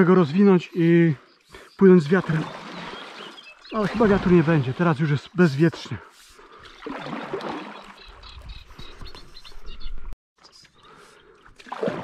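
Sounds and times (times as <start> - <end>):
small birds chirping: 0.0 - 6.9, 7.6 - 11.4
paddle splashing in water: 2.0 - 5.0, 6.1 - 8.8, 11.4 - 12.0.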